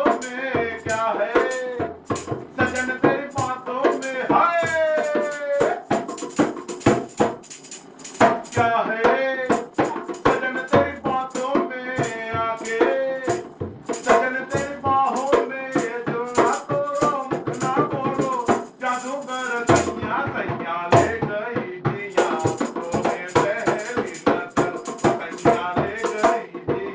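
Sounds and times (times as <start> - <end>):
person singing: 0.0 - 6.5, 8.1 - 26.9
dholak hand drumming: 0.0 - 26.9.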